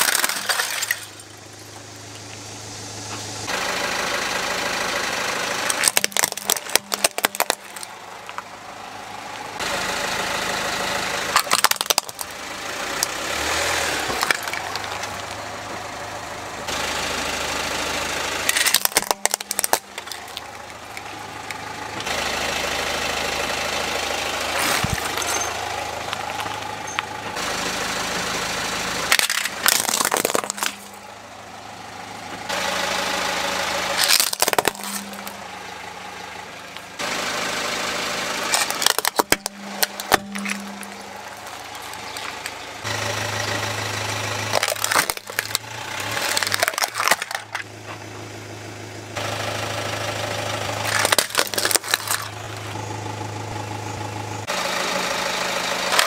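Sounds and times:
tyre crushing plastic toys: 0.0 - 1.3, 5.7 - 8.4, 11.3 - 12.4, 13.9 - 15.4, 18.4 - 22.1, 24.5 - 27.0, 29.1 - 31.0, 33.9 - 35.5, 38.4 - 42.6, 44.3 - 47.7, 50.8 - 52.8
car engine idling: 0.0 - 56.0.

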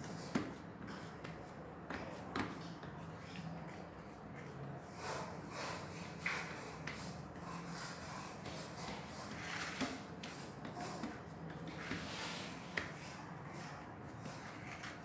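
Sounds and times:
hands rubbing and patting mixture: 0.0 - 15.0.

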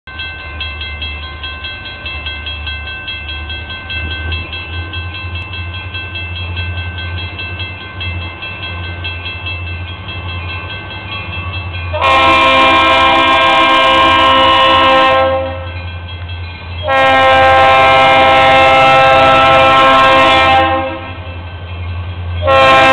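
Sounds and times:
bell ringing rapidly: 0.1 - 12.0
diesel locomotive engine rumble: 0.1 - 22.9
loud train air horn: 11.9 - 15.7, 16.8 - 21.2, 22.4 - 22.9.

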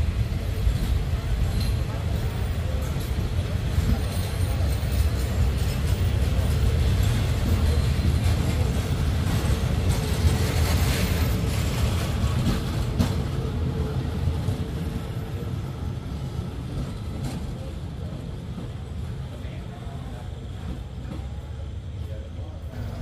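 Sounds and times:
train wheels rumbling on rails: 0.0 - 23.0
wheels clacking over rail joints: 0.1 - 15.4.

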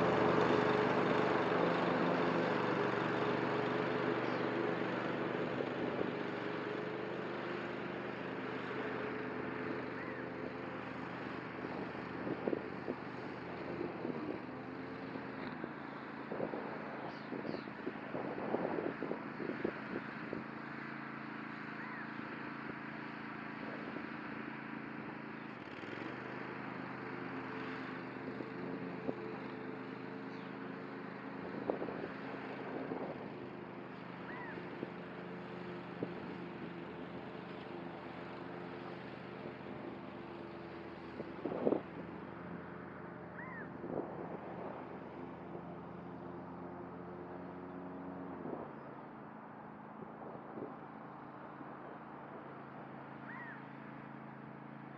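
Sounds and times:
distant mower engine running: 0.0 - 54.9.

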